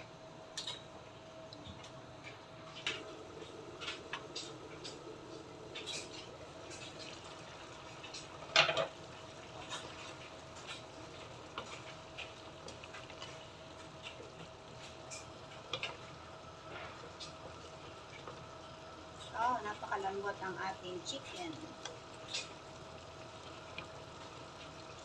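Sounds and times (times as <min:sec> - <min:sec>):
wooden spatula stirring: 0:02.6 - 0:25.0
sauce bubbling and popping: 0:02.8 - 0:19.4, 0:21.7 - 0:25.0.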